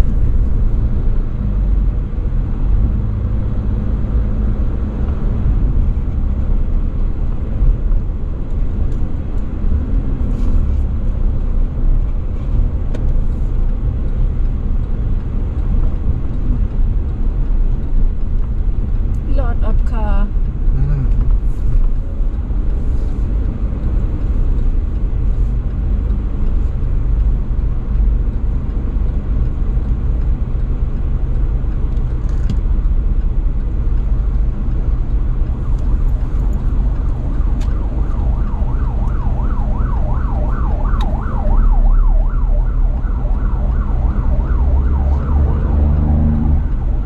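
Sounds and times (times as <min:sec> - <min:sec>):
car driving rumble: 0:00.0 - 0:47.0
siren sweeping up and down: 0:35.2 - 0:47.0.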